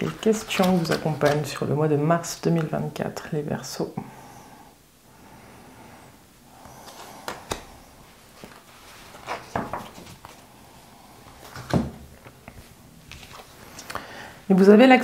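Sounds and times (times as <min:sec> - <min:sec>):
cards rustling: 0:00.0 - 0:01.6, 0:06.7 - 0:10.5, 0:11.2 - 0:14.0.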